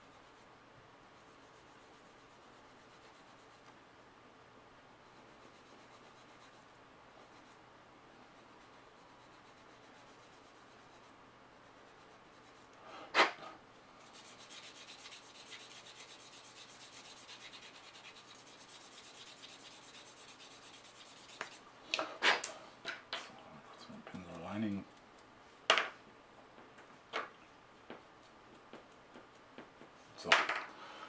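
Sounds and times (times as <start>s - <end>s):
sanding stick rasping on plastic: 0.0s - 3.6s, 8.3s - 11.2s, 14.0s - 21.6s.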